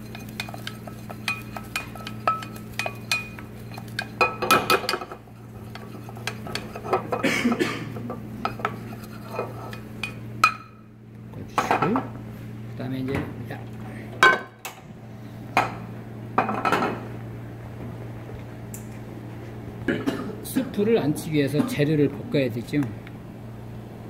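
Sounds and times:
utensil scraping pot: 0.0s - 7.2s, 7.9s - 10.6s.

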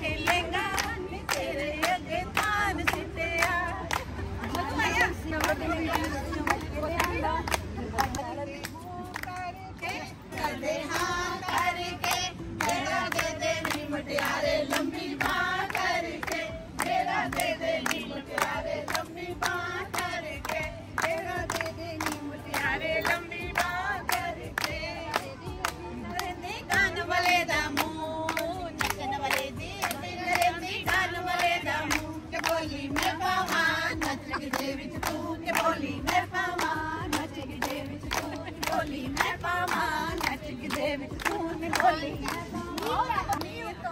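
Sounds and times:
hands clapping in rhythm: 0.0s - 43.9s
women singing together: 0.0s - 43.9s.

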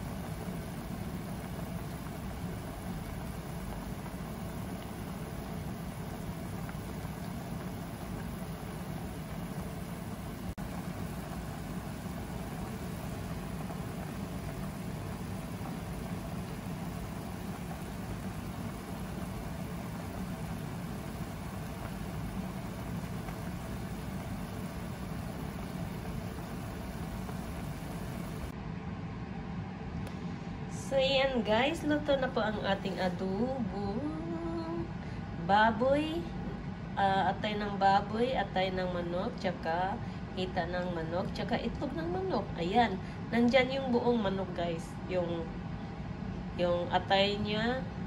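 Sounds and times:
pot simmering on stove: 0.0s - 28.6s.

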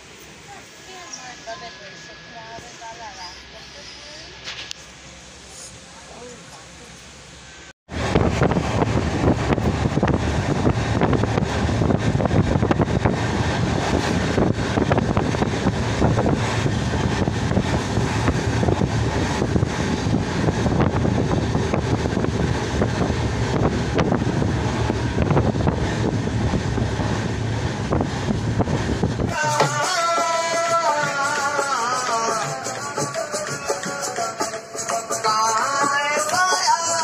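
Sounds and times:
train coach on track: 0.0s - 37.0s
wind on microphone: 7.9s - 29.4s.

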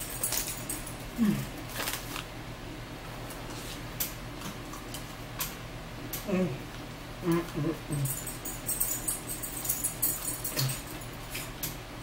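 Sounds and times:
plastic pouch crinkling: 1.7s - 2.3s.

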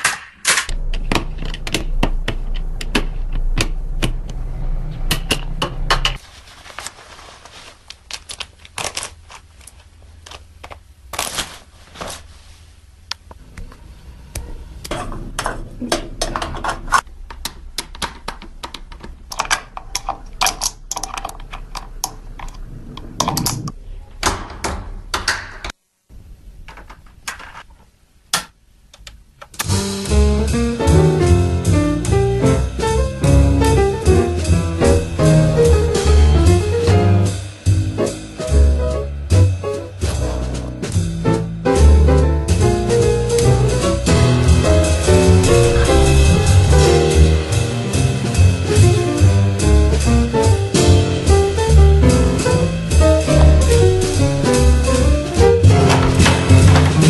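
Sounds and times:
irregular sharp clicks and taps: 0.9s - 4.2s
low hum: 44.2s - 48.7s.

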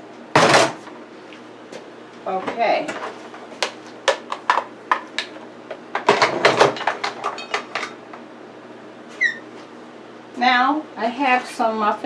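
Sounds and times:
kitchenware clicks and knocks: 6.0s - 7.9s
metal pans clattering: 6.0s - 8.0s.

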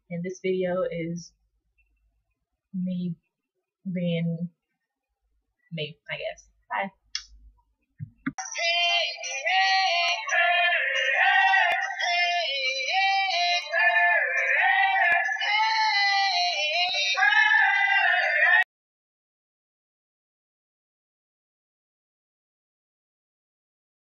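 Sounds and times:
high-pitched singing: 8.4s - 18.6s.

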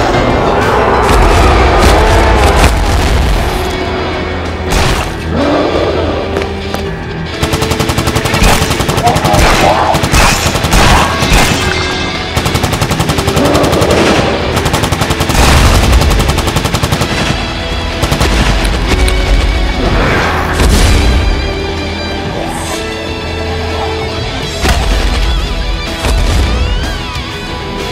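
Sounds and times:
music soundtrack: 0.0s - 27.9s
automatic rifle fire: 12.4s - 17.4s.

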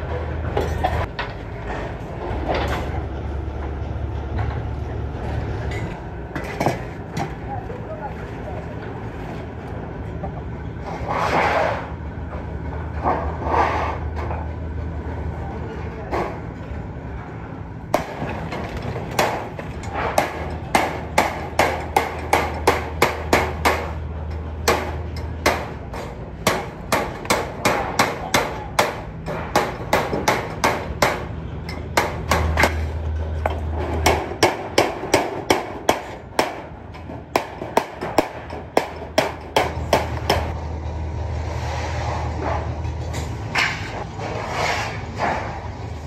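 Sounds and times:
hammer striking steel sheet: 20.1s - 24.0s.

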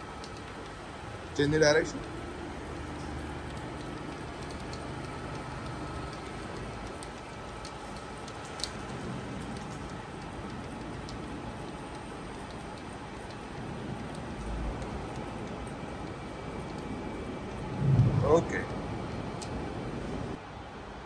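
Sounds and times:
faint ticks: 2.0s - 16.9s.

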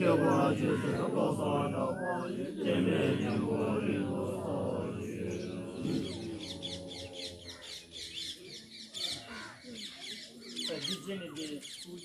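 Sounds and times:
monks chanting: 0.0s - 8.3s
birds chirping: 0.0s - 12.0s.

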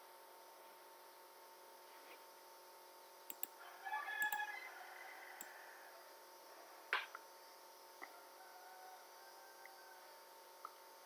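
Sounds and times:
faint electrical whine: 0.0s - 11.0s
computer mouse clicks: 3.3s - 3.6s, 4.2s - 4.4s.

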